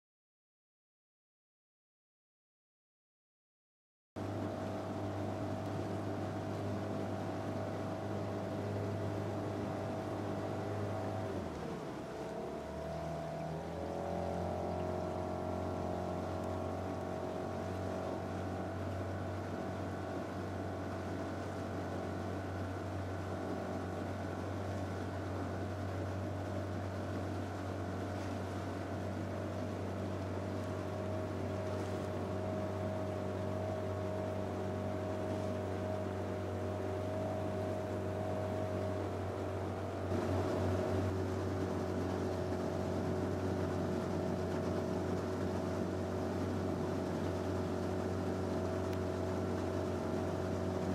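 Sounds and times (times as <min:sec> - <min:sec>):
outboard motor humming: 0:04.2 - 0:50.9.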